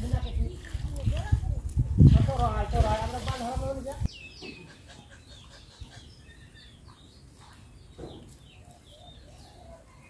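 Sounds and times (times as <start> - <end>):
birds chirping: 0.0 - 1.4, 3.6 - 10.0.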